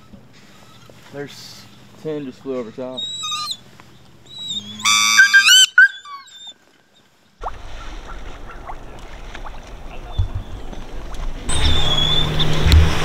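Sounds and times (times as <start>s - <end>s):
low outdoor background: 0.0s - 13.0s
duck call squeals: 2.5s - 3.6s, 4.3s - 6.5s.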